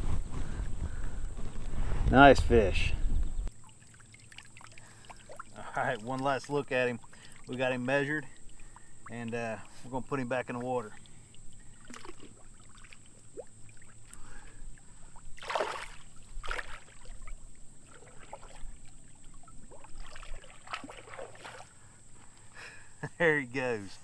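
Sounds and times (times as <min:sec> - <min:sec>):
water splashing: 0:03.5 - 0:21.9.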